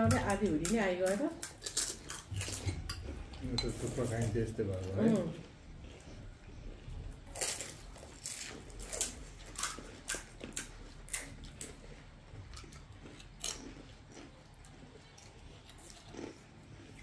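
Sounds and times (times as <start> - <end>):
crunching of crisp snacks: 1.4 - 2.8, 3.9 - 17.0.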